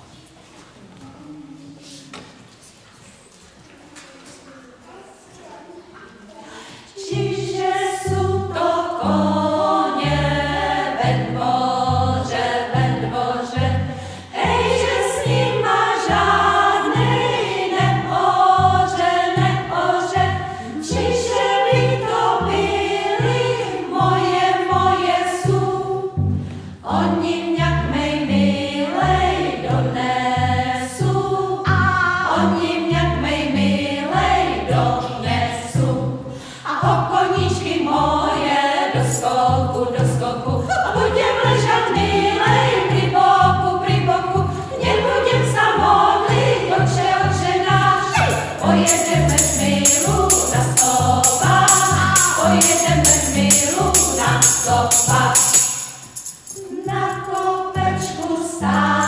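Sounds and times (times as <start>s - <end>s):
women's choir singing: 6.6s - 59.0s
plucked double bass: 29.0s - 38.4s, 39.0s - 54.4s.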